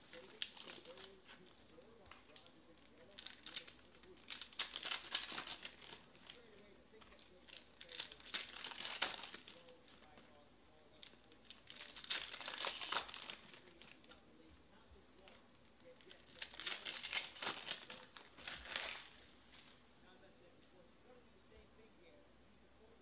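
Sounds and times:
foil wrappers crinkling and tearing: 0:00.0 - 0:10.4, 0:11.0 - 0:14.2, 0:15.2 - 0:19.8.

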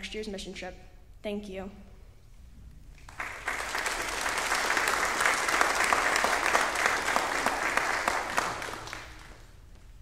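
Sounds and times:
congregation applauding: 0:03.0 - 0:09.7.

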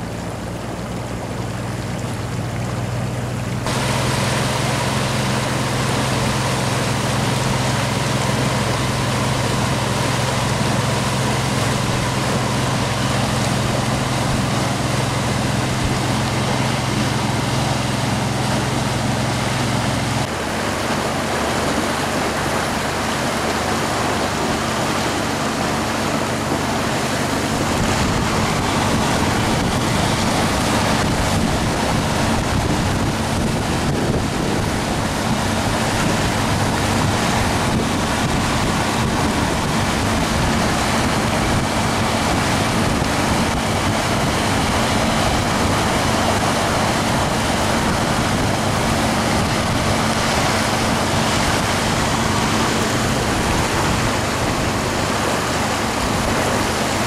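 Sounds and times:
boat wake churning water: 0:00.0 - 0:57.0
low engine hum: 0:00.0 - 0:57.0
wind buffeting microphone: 0:21.5 - 0:57.0.

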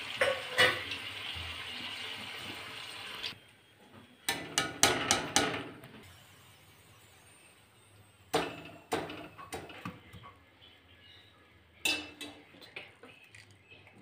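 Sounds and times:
steel kitchenware clinking: 0:11.8 - 0:13.6.

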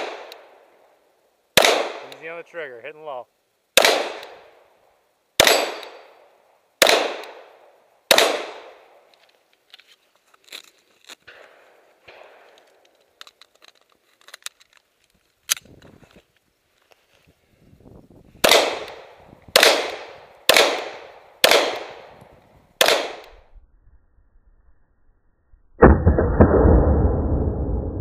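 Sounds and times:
pistol shots echoing: 0:01.6 - 0:02.3, 0:03.8 - 0:04.6, 0:05.4 - 0:06.2, 0:06.8 - 0:09.0, 0:18.4 - 0:22.2, 0:22.8 - 0:23.3.

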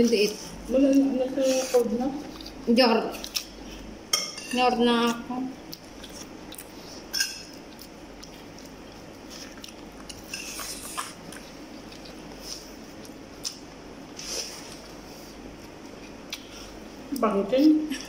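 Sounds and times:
person chewing: 0:02.2 - 0:03.9, 0:05.6 - 0:16.8.

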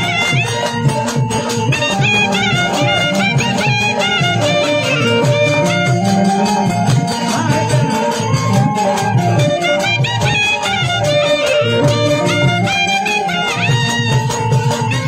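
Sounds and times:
folk instrumental melody: 0:00.0 - 0:15.0.

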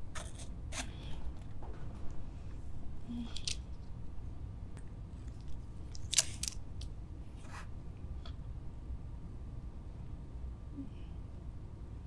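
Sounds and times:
plastic bottle scrapes and clicks: 0:00.0 - 0:00.9.

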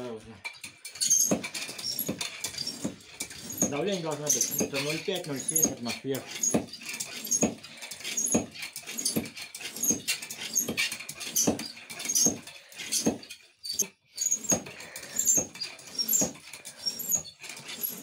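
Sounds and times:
hand pump air rushing: 0:00.6 - 0:18.0.

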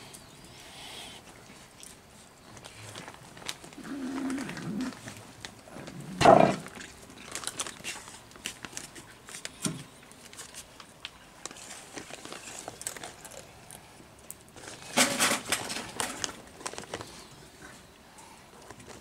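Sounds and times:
cats crunching dry kibble: 0:01.3 - 0:19.0
cat growling: 0:03.8 - 0:05.0.

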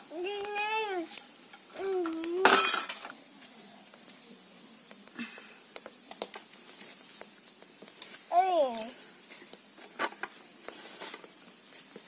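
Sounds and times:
cookware clattering on steel: 0:02.5 - 0:03.1.

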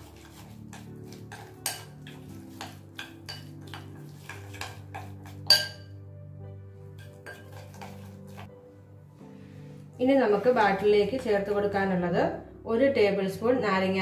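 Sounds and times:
spoon scraping glass bowl: 0:00.0 - 0:05.9, 0:07.0 - 0:08.5
soft background music: 0:00.0 - 0:14.0.

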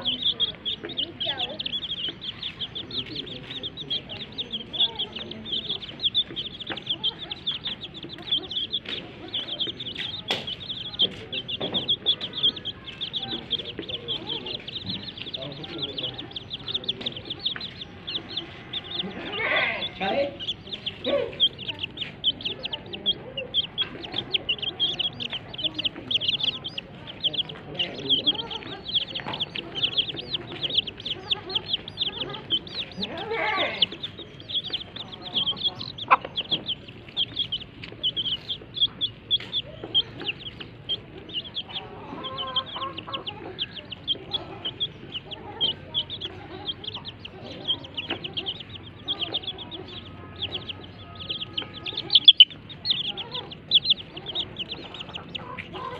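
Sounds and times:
chicks peeping: 0:00.0 - 0:55.9
hen clucking low: 0:00.0 - 0:55.9.

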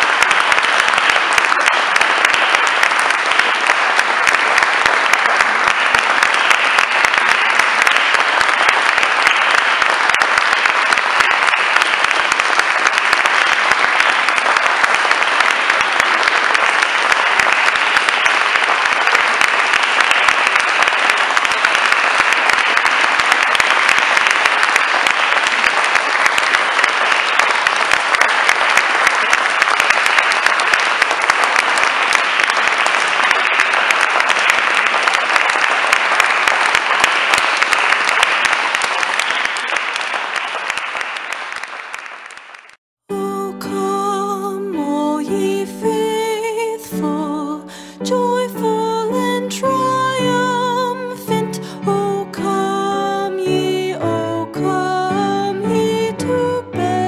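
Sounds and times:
audience applauding: 0:00.0 - 0:43.9, 0:44.8 - 0:57.0.

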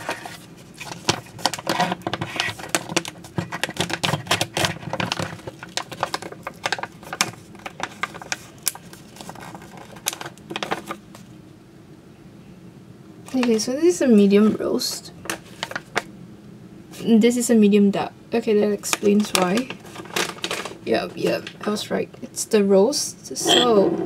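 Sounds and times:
packaging crinkling and crackling: 0:00.0 - 0:11.3, 0:15.2 - 0:16.1, 0:19.1 - 0:20.8.

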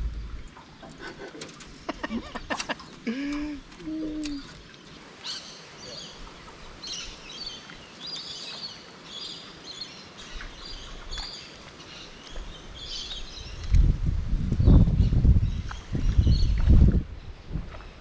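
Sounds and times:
loud low rumble: 0:00.0 - 0:00.6
birds chirping: 0:00.0 - 0:13.7.

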